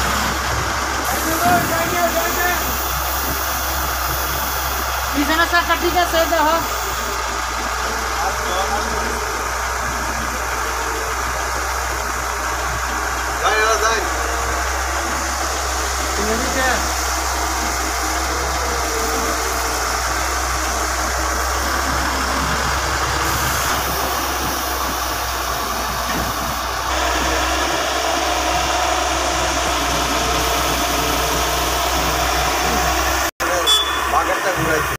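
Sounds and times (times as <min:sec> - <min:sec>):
diesel engines rumbling: 0:00.0 - 0:34.9.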